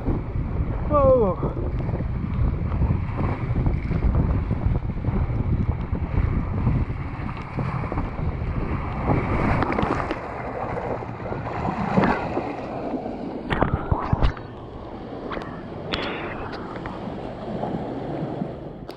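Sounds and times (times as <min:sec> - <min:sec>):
water rushing along slide: 0:00.0 - 0:18.9
wind buffeting microphone: 0:00.0 - 0:18.9
sharp splashes and knocks: 0:07.2 - 0:17.0.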